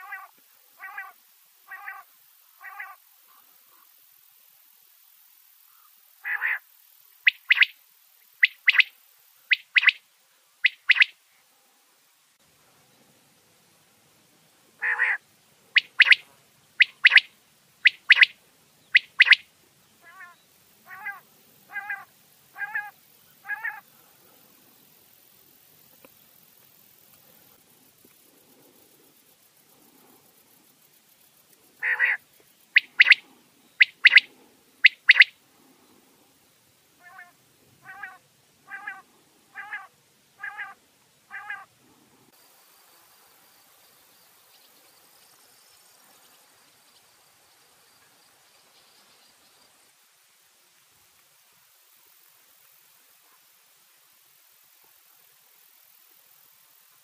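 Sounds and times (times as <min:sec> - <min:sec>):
quail double-note calls: 0:00.0 - 0:03.4, 0:06.2 - 0:06.6, 0:07.2 - 0:07.7, 0:08.4 - 0:08.9, 0:09.5 - 0:10.0, 0:10.6 - 0:11.1, 0:14.8 - 0:15.2, 0:15.8 - 0:16.2, 0:16.8 - 0:19.4, 0:20.0 - 0:23.8, 0:31.8 - 0:32.2, 0:32.8 - 0:35.4, 0:37.0 - 0:41.7.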